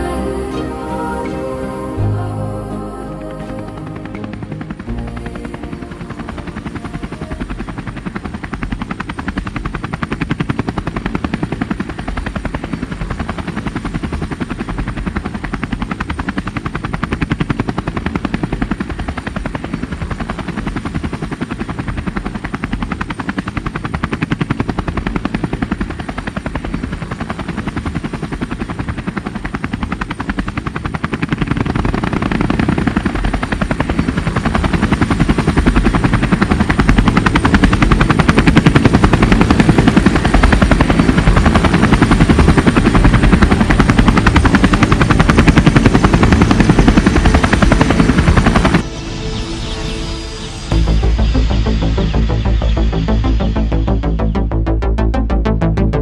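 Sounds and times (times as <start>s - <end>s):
drone rotors buzzing: 0.0s - 14.0s, 22.7s - 56.0s.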